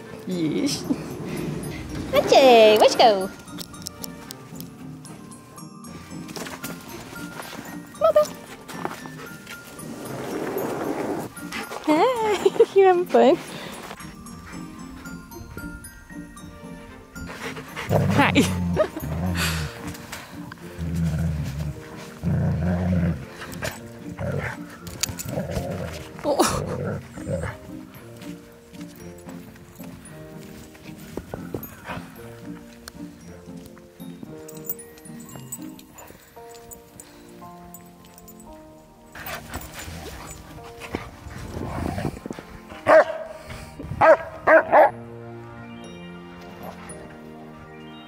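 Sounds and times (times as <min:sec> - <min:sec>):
background music: 0:00.0 - 0:48.0
dogs growling: 0:00.4 - 0:03.0, 0:09.1 - 0:11.8, 0:17.2 - 0:27.9, 0:39.1 - 0:44.9
dog barking: 0:42.9 - 0:43.4, 0:44.0 - 0:45.0.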